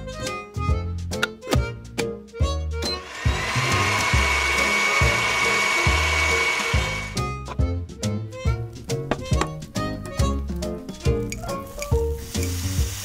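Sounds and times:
small blender motor whining: 2.8s - 7.4s.

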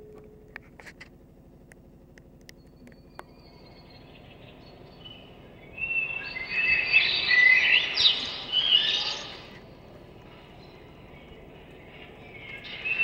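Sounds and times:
birds chirping and calling: 3.2s - 9.7s, 10.3s - 13.0s.

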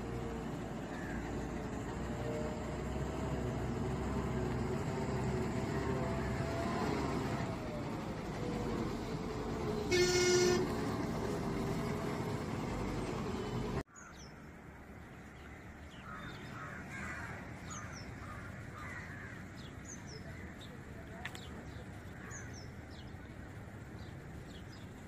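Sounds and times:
bus engine running: 0.0s - 13.9s, 14.6s - 25.0s
crows cawing: 0.9s - 1.4s, 16.0s - 19.5s
vehicle horn toot: 9.8s - 11.0s.

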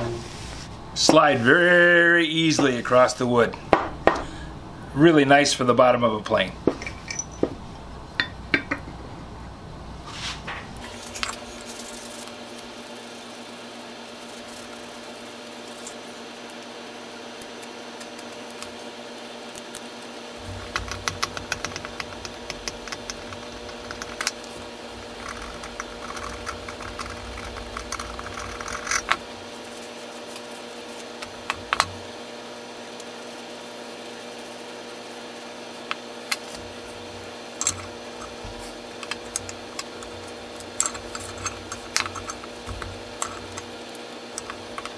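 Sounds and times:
steady low hum: 0.0s - 44.9s
metal parts clicking and rattling: 39.0s - 43.7s.

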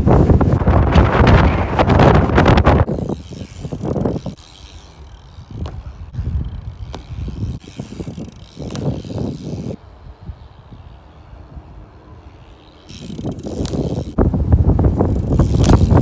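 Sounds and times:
bike tyres rolling on concrete: 0.0s - 16.0s
wind buffeting microphone: 0.0s - 16.0s
bike landing knocks: 2.6s - 9.8s, 12.5s - 14.2s, 15.0s - 16.0s.

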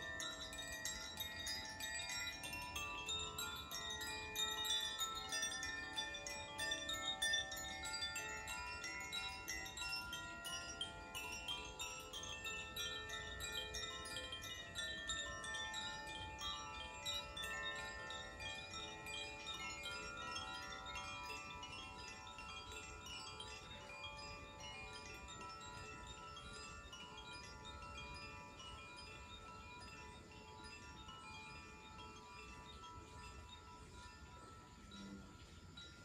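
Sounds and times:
bamboo wind chimes ringing: 0.0s - 36.0s.

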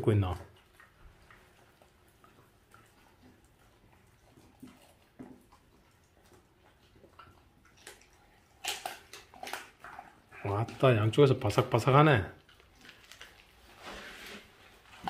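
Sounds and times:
dogs chewing wetly: 0.0s - 15.0s
crisp crunches: 12.6s - 15.0s.

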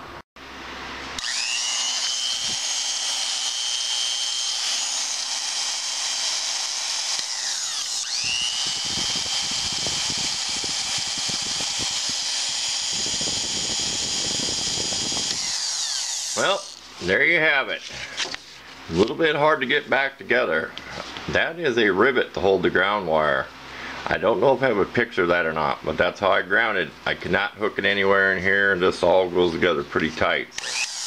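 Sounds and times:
electric drill whining: 1.1s - 16.9s, 30.6s - 31.0s.

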